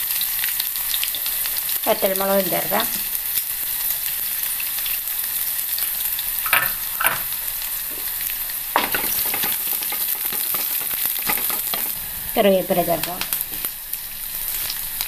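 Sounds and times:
shallots sizzling in hot oil: 0.0s - 15.0s
wooden spatula scraping pan: 8.8s - 12.0s.

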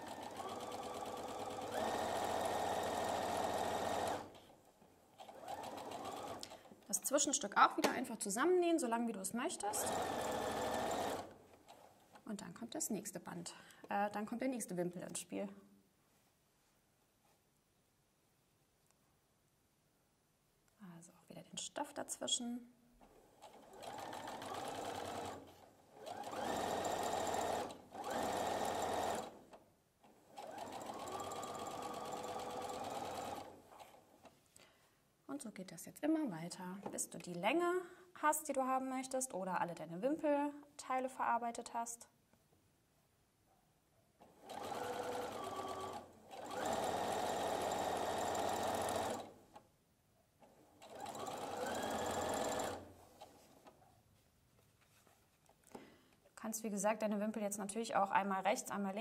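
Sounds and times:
electric sewing machine stitching: 0.0s - 4.4s, 5.2s - 6.6s, 9.6s - 11.3s, 23.1s - 29.5s, 30.3s - 34.0s, 44.2s - 49.4s, 50.5s - 52.9s.

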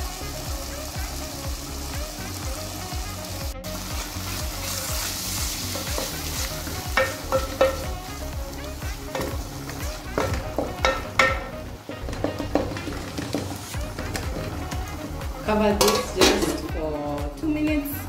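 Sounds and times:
sauce sizzling in a pot: 0.0s - 18.0s
spoon knocking against pot: 7.0s - 7.9s, 10.2s - 13.3s.

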